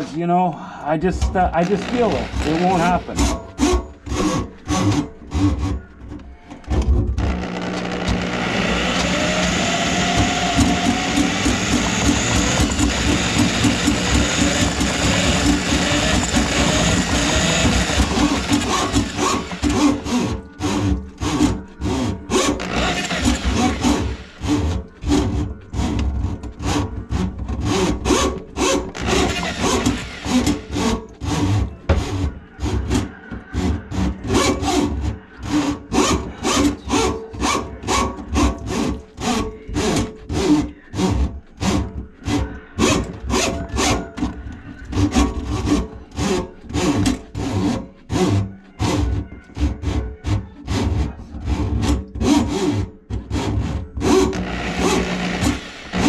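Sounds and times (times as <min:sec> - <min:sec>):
drain auger motor humming: 0:07.2 - 0:21.0, 0:22.3 - 0:24.7, 0:54.0 - 0:56.0.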